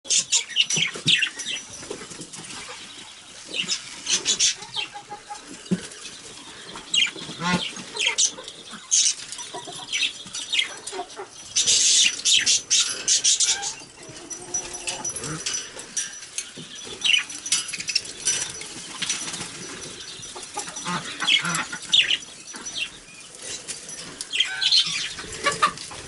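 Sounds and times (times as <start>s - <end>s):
budgies chirping: 0.1s - 14.3s, 16.4s - 26.0s
birds flapping wings: 17.8s - 19.8s.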